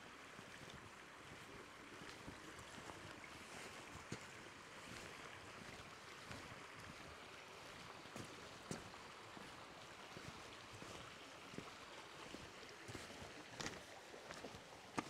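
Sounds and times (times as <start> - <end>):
stony river rushing: 0.0 - 15.0
footsteps on path: 0.5 - 7.1, 8.2 - 9.0, 12.9 - 15.0.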